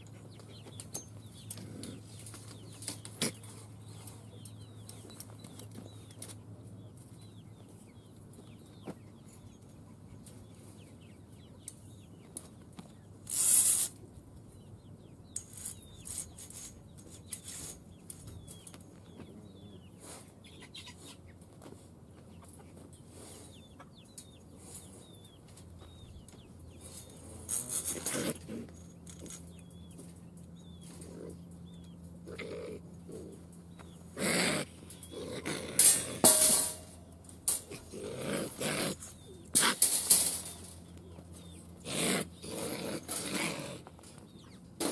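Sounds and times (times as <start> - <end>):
chickens clucking: 0.0 - 44.9.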